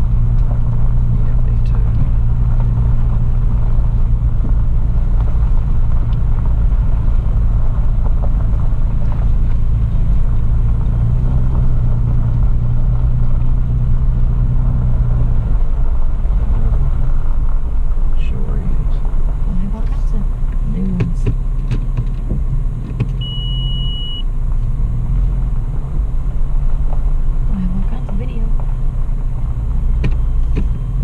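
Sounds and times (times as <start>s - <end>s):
car engine drone: 0.0s - 31.0s
road rumble: 0.0s - 31.0s.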